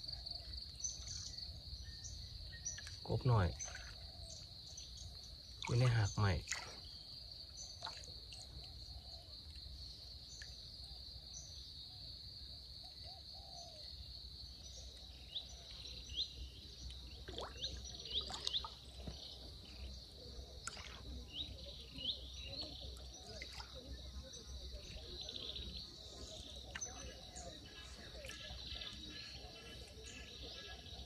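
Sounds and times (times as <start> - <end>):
bird chirps: 14.6 - 31.0.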